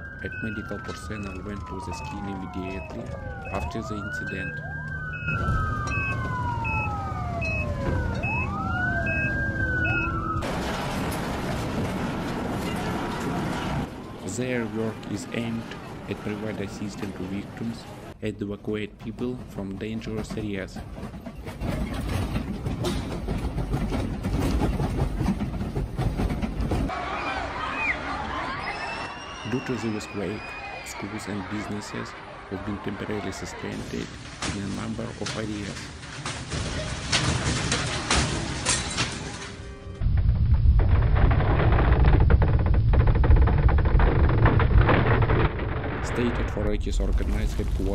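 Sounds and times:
fire engine sirens wailing: 0:00.0 - 0:18.2, 0:26.9 - 0:34.2
low earthquake rumble: 0:40.0 - 0:47.9.

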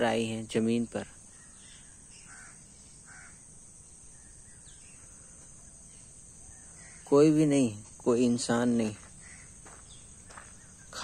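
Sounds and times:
high drone of insects: 0:00.0 - 0:11.0
distant crows cawing: 0:01.3 - 0:03.6, 0:06.4 - 0:07.2, 0:09.0 - 0:11.0.

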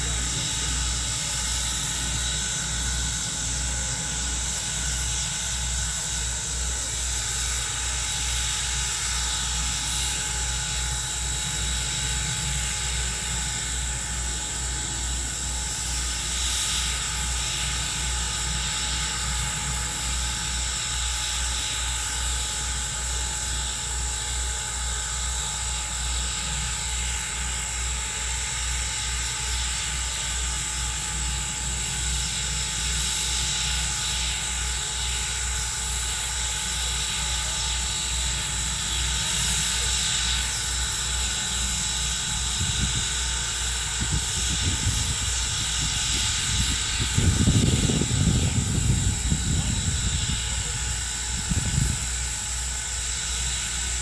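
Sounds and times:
steam locomotive hissing: 0:00.0 - 0:54.0
low pulsing rumble: 0:43.8 - 0:52.5.

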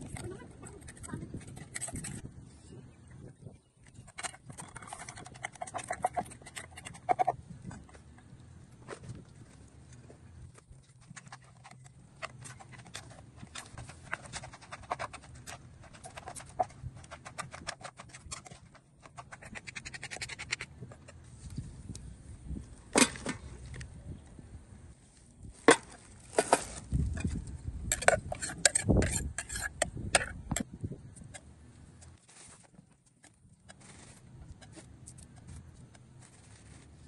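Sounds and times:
spoon scraping: 0:00.1 - 0:02.3, 0:04.0 - 0:07.9, 0:10.9 - 0:21.2, 0:27.1 - 0:31.4.

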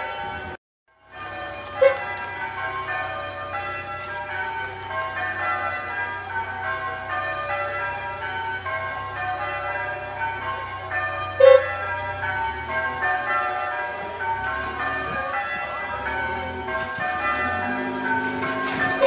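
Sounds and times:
bells ringing: 0:00.0 - 0:19.0.

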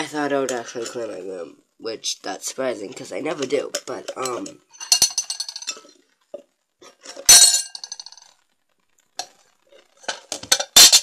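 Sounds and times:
dishes clinking: 0:04.2 - 0:05.9.

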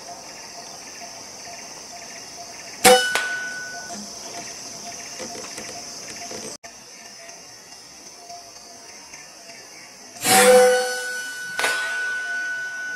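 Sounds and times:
insects buzzing: 0:00.0 - 0:12.9
air rifle shot: 0:11.6 - 0:12.5.

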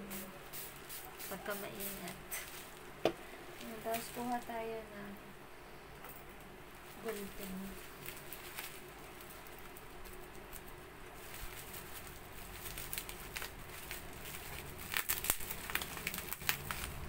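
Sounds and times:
bubble-wrap package crinkling: 0:03.6 - 0:04.6, 0:06.8 - 0:17.0.

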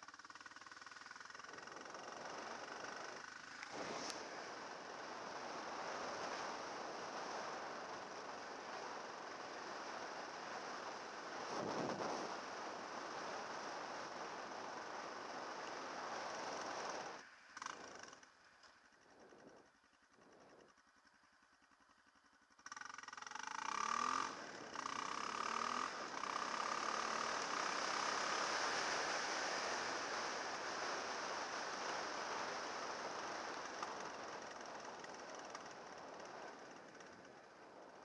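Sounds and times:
dirt bike engine accelerating: 0:00.0 - 0:38.0
wind rush on microphone: 0:09.4 - 0:17.2.

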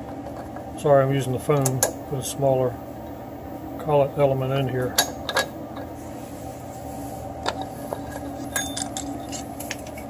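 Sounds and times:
background hum: 0:00.0 - 0:10.0
light metallic clinks: 0:08.4 - 0:10.0.

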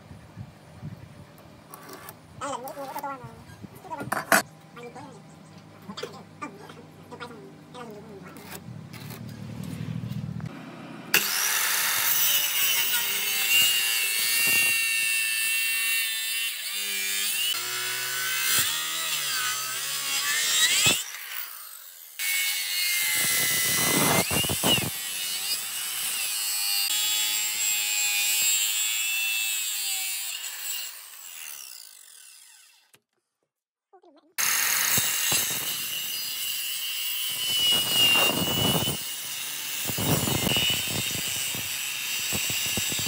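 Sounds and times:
power tool cutting wood: 0:10.5 - 0:33.0, 0:34.4 - 0:43.0.

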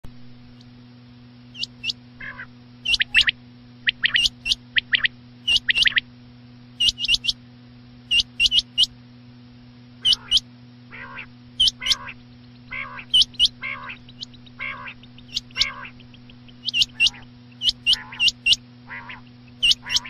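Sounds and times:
low electrical hum: 0:00.0 - 0:20.0
recorded quail calls: 0:01.6 - 0:06.0, 0:06.8 - 0:07.4, 0:08.1 - 0:08.9, 0:10.0 - 0:20.0.

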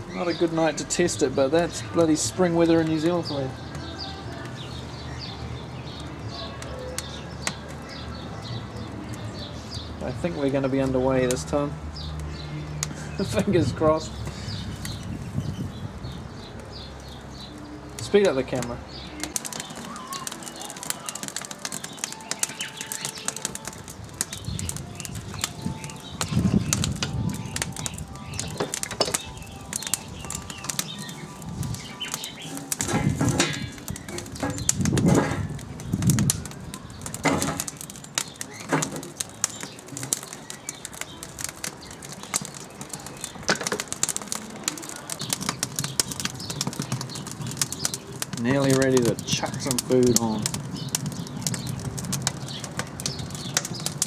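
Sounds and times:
wood fire crackling: 0:00.0 - 0:54.0
wind buffeting microphone: 0:13.3 - 0:17.0, 0:23.4 - 0:38.2.

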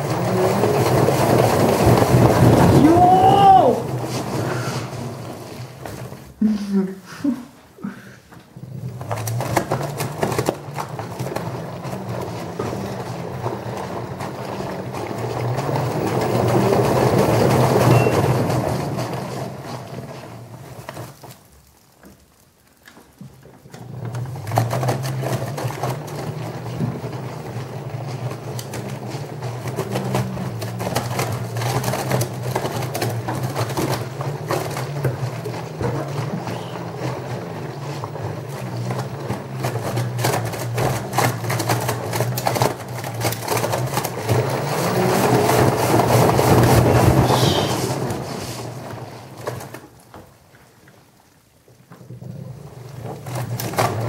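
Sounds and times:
washing machine motor hum: 0:00.0 - 0:22.1, 0:23.1 - 0:54.0.

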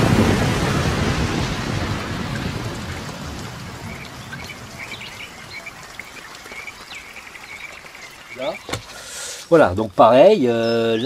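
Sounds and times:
faint bird chirps: 0:03.8 - 0:09.0.

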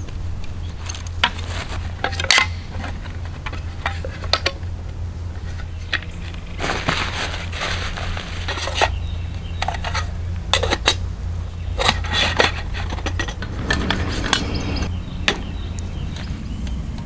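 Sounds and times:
low rumble: 0:13.0 - 0:15.7.

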